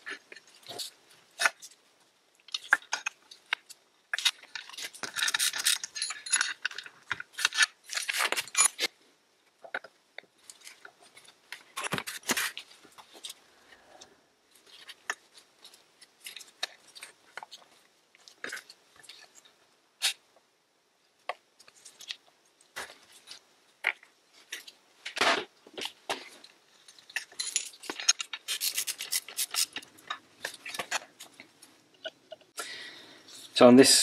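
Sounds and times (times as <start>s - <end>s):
metal parts clinking on wooden bench: 4.5s - 8.8s, 27.0s - 28.7s.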